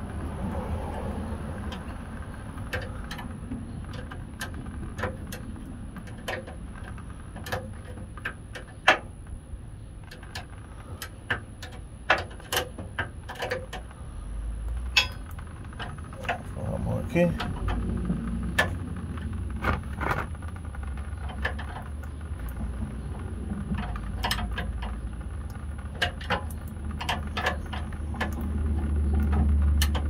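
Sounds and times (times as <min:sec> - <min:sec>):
low rumble: 0:13.8 - 0:30.0
wrenches clicking on metal: 0:23.6 - 0:25.0.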